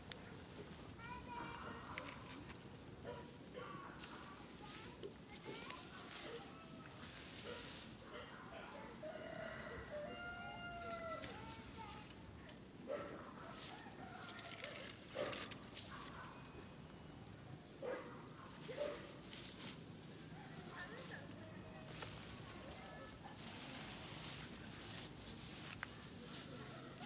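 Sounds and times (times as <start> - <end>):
rustling through undergrowth: 0.0 - 12.5, 13.4 - 16.6, 18.5 - 27.0.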